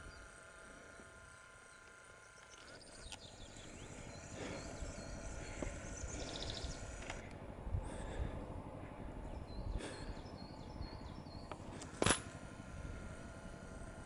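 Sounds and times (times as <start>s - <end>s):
rapid bird trill: 0.0s - 7.3s, 8.9s - 11.6s
faint bird chirps: 1.6s - 7.0s, 9.2s - 11.6s.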